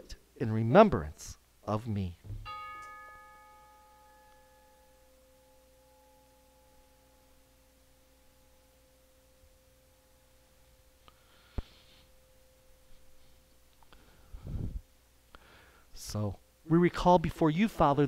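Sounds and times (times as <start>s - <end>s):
altar bell ringing: 2.4s - 11.0s.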